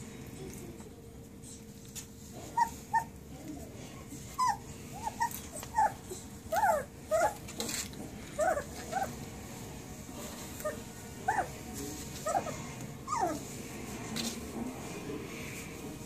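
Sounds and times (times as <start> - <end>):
puppies squeaking and whimpering: 2.4 - 3.2, 4.3 - 9.2, 10.6 - 13.6.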